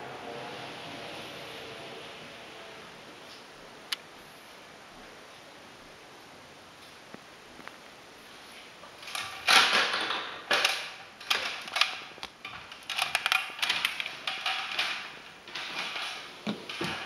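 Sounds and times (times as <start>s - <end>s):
handling rustles and knocks: 6.9s - 17.0s.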